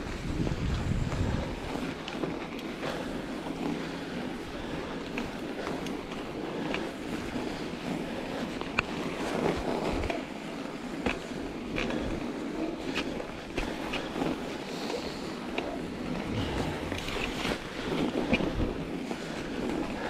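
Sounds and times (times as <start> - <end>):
wind on microphone: 0.0 - 1.8, 15.8 - 19.0
bike tyres rushing over snow: 0.0 - 20.0.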